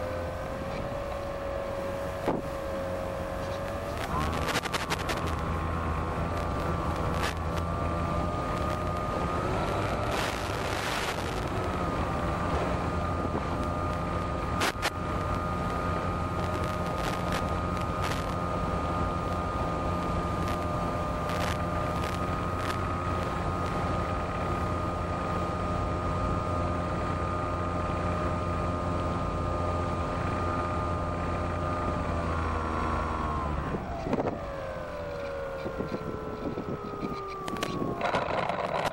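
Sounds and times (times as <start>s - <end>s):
model airplane motor whine: 0.0s - 38.9s.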